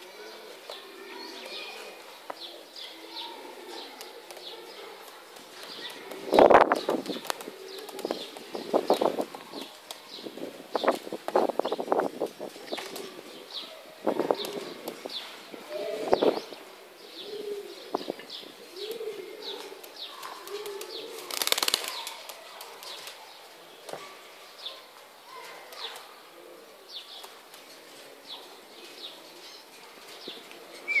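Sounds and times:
pigeons cooing: 0.0 - 10.9, 11.6 - 22.2, 25.5 - 31.0
small birds chirping: 0.0 - 31.0
wing flapping: 5.3 - 10.1, 20.2 - 23.2.

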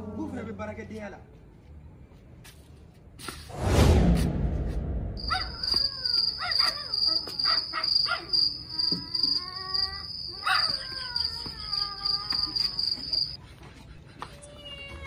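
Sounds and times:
crickets trilling: 5.2 - 13.4.

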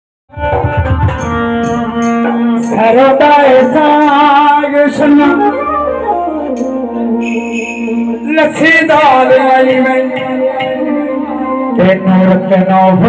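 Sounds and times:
man singing through loudspeaker: 2.6 - 13.0
sustained accompaniment tones: 4.8 - 10.3.

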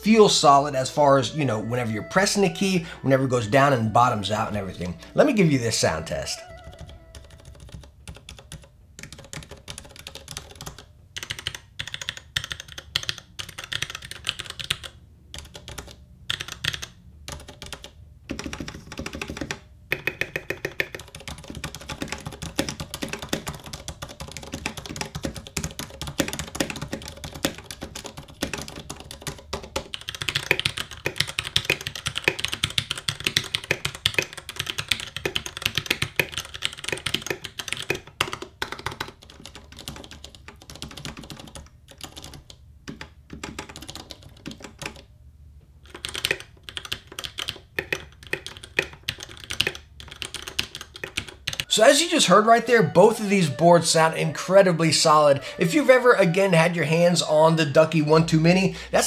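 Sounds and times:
fast typing on mechanical keyboard: 6.5 - 45.1, 45.8 - 52.2.

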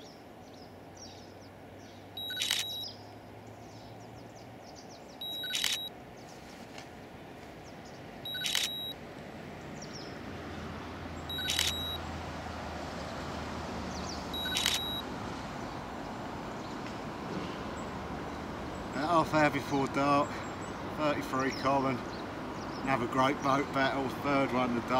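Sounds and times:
camera shutter firing: 2.3 - 2.8, 5.3 - 5.9, 8.4 - 8.9, 11.4 - 12.0, 14.4 - 15.0.

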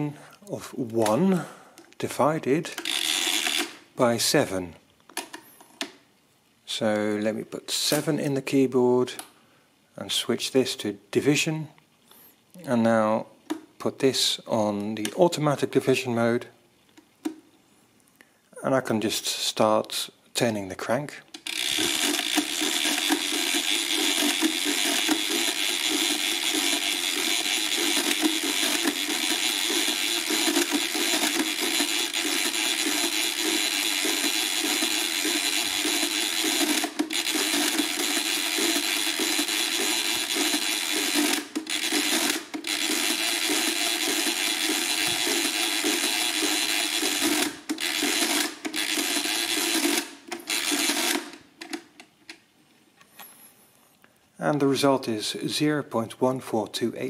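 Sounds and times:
mechanical calculator crank clatter: 2.7 - 3.8, 21.4 - 51.8.

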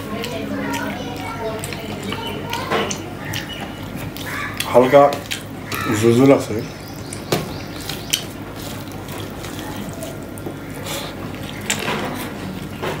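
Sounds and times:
wet chewing: 0.0 - 13.0
fingers squishing rice on plate: 7.0 - 13.0.

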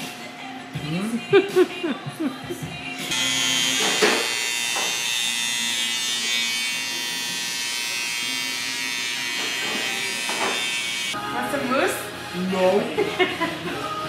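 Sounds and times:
electric hair trimmer buzzing: 3.0 - 11.2.

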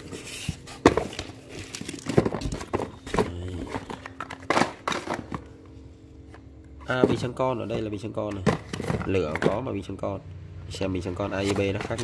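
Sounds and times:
boxes knocking and clunking: 0.0 - 5.5, 6.8 - 10.0, 11.0 - 12.0
cardboard rustling: 11.1 - 12.0.

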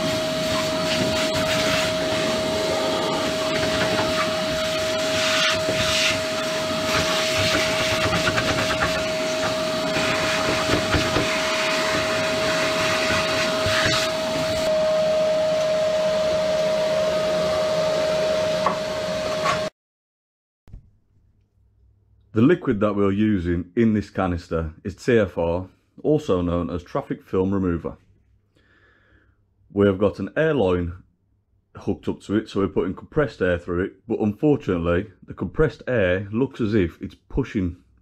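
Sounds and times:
vacuum cleaner whining: 0.0 - 19.7.

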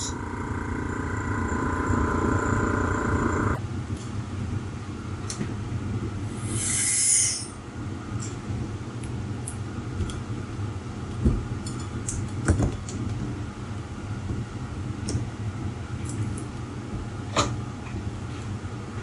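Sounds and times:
steady low hum: 0.0 - 6.8
air hissing into chamber: 6.4 - 7.5.

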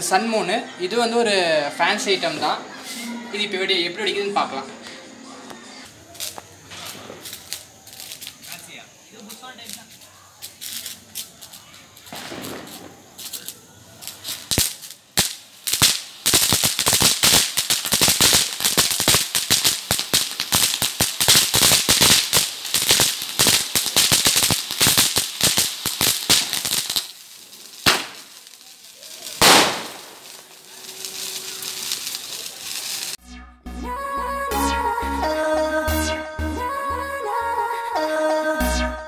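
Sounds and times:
soft fizz of sparks: 2.2 - 3.2, 5.9 - 33.2
firework crackling pops: 5.9 - 33.2
firework cracks: 5.9 - 33.2
firework burst: 6.0 - 33.2.

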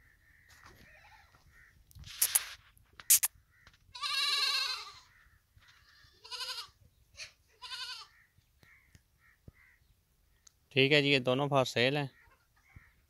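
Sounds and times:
goats bleating: 3.9 - 5.1, 5.9 - 6.8, 7.6 - 8.1.

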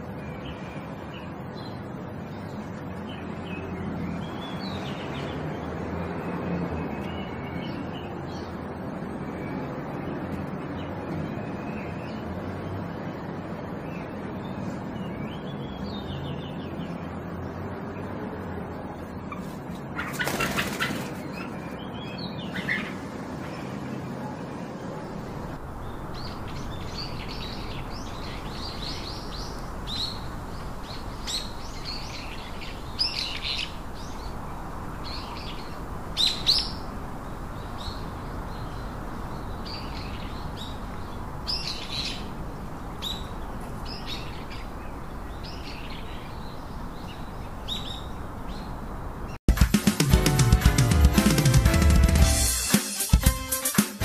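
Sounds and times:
small birds chirping: 0.0 - 49.5
music with drums: 49.5 - 54.0.

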